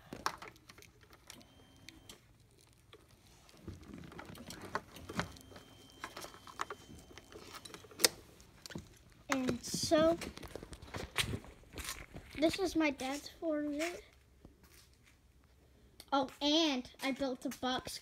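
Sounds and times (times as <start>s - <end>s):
handling clicks and rustles: 0.0s - 14.0s.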